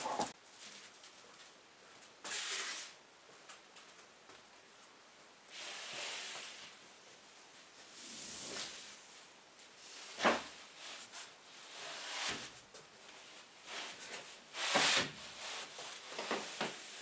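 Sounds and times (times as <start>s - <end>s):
plywood sheet scraping on floor: 2.2s - 3.0s, 5.5s - 6.8s, 7.8s - 9.1s, 9.8s - 12.6s, 13.2s - 17.0s.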